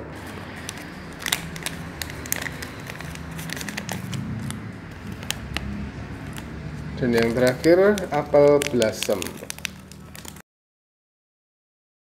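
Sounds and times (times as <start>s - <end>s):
plastic pouch crinkling: 0.2s - 10.4s.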